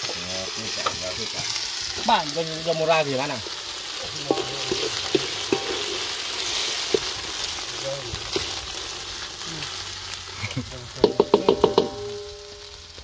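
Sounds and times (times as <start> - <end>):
paste sizzling in hot oil: 0.0 - 13.0
wooden spatula scraping a wok: 4.2 - 7.3
spatula knocking against pan: 11.0 - 12.3.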